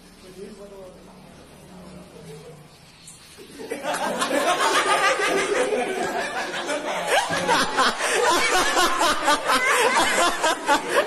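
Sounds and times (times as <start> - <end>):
boys laughing and chattering: 3.2 - 11.0.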